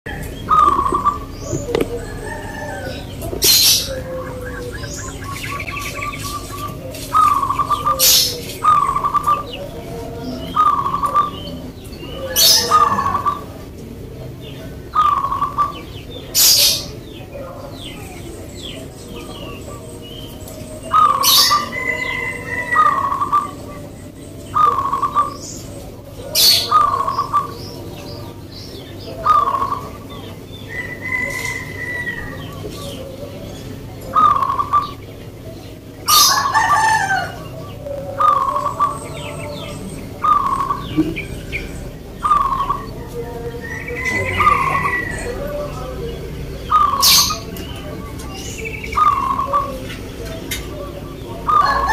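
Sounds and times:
sharp loud bird calls: 0:00.1 - 0:13.7
doves cooing: 0:00.1 - 0:51.9.

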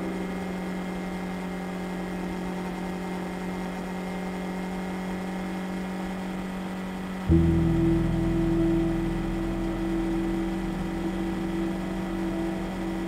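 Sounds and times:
ambient background music: 0:00.0 - 0:04.2, 0:07.3 - 0:13.0.

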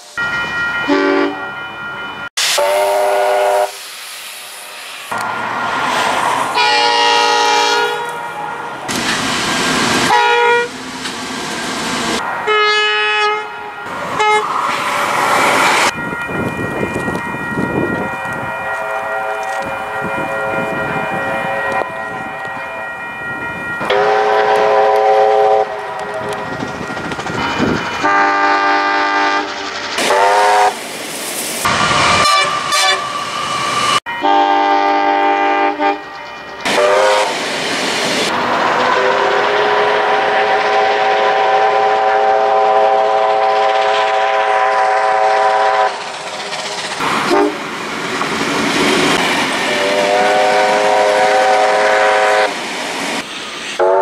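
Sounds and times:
steam locomotive chime whistle: 0:00.0 - 0:05.2, 0:06.5 - 0:08.8, 0:10.1 - 0:10.8, 0:12.4 - 0:14.6, 0:15.2 - 0:30.8, 0:32.0 - 0:37.4, 0:38.9 - 0:46.1, 0:47.3 - 0:47.6, 0:49.7 - 0:52.6, 0:53.8 - 0:54.0
passing train rumble: 0:00.0 - 0:54.0.

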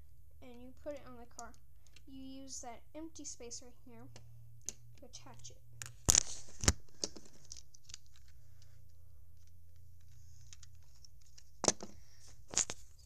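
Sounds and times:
plastic pieces rustling: 0:06.1 - 0:08.8, 0:09.4 - 0:13.0.

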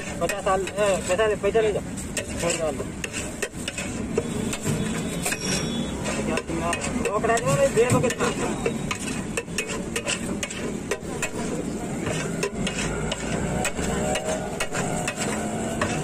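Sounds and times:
metal spatula scraping a griddle: 0:00.0 - 0:16.0.

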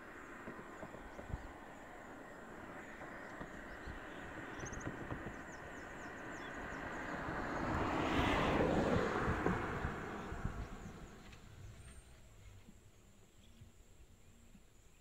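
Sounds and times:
vehicle driving past: 0:00.8 - 0:12.2.

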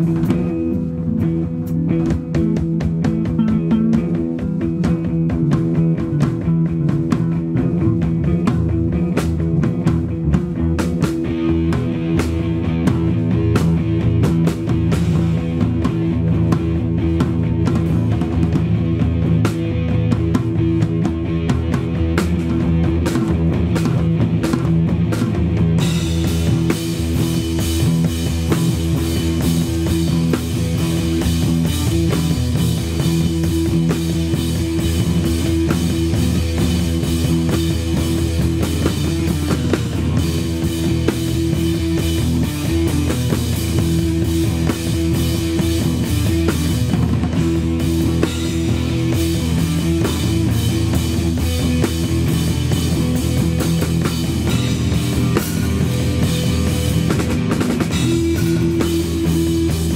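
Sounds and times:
amplified electric guitar: 0:00.0 - 0:59.9
drum kit playing: 0:00.0 - 0:59.9.

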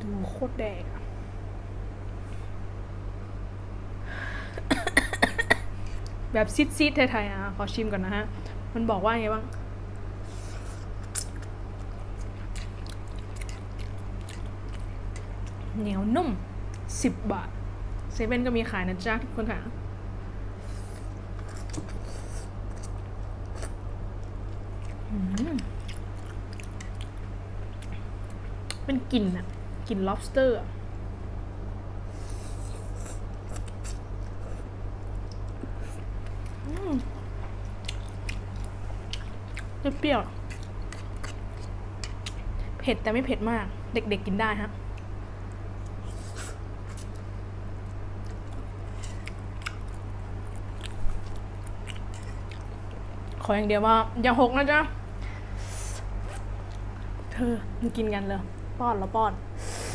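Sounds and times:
steady low hum: 0:00.0 - 0:59.9
person humming mm: 0:25.1 - 0:25.7
mouth noises eating noodles: 0:45.9 - 0:47.1, 0:55.6 - 0:56.5.

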